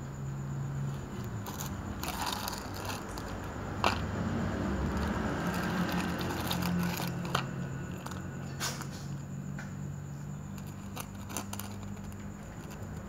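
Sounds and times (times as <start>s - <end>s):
cat crunching dry kibble: 0.9s - 4.2s, 4.8s - 8.5s, 10.5s - 13.0s.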